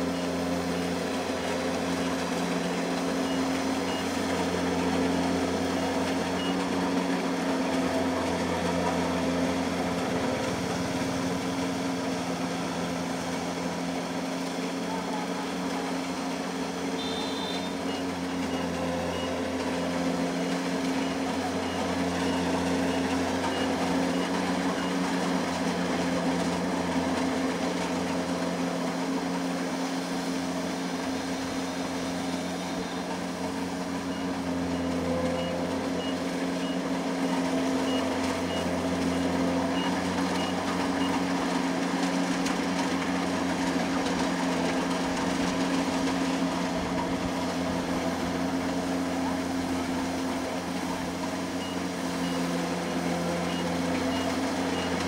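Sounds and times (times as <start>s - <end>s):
diesel engine running: 0.0s - 55.0s
high warning beep: 17.0s - 19.4s.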